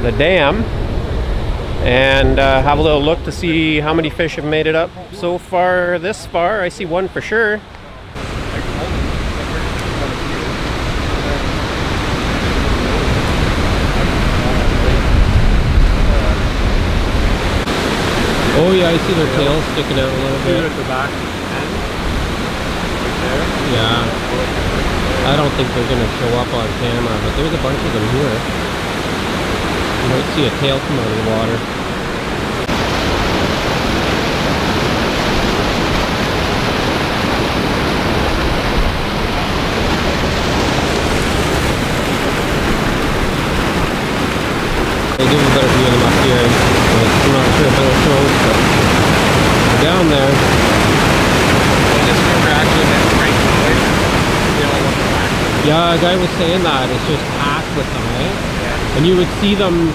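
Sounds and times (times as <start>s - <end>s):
wind rumbling on microphone: 0.0s - 5.2s, 7.7s - 59.9s
white water rushing: 0.0s - 59.9s
water pouring over spillway: 17.7s - 21.1s, 34.1s - 59.9s.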